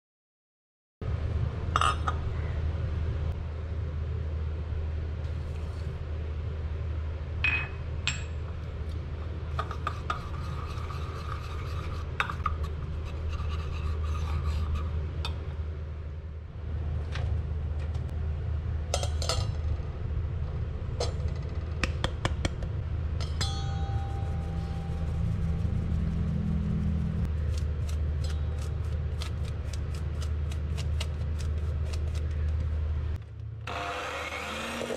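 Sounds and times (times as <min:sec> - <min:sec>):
low hum: 0:01.0 - 0:34.5
spatula rubbing through mesh sieve: 0:09.6 - 0:15.1, 0:23.9 - 0:32.6.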